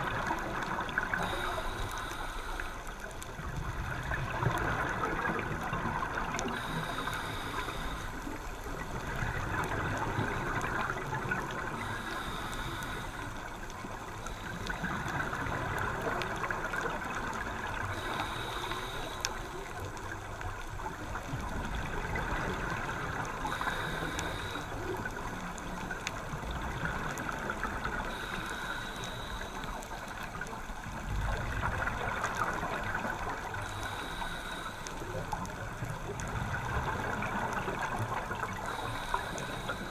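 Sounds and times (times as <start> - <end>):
regulator inhale hiss with whistle: 1.0 - 2.9, 6.5 - 8.4, 11.7 - 13.6, 17.9 - 19.7, 23.5 - 25.0, 28.0 - 30.4, 33.5 - 35.2, 38.6 - 39.9
gurgling exhaled bubbles: 3.3 - 7.8, 8.5 - 12.3, 20.0 - 28.3.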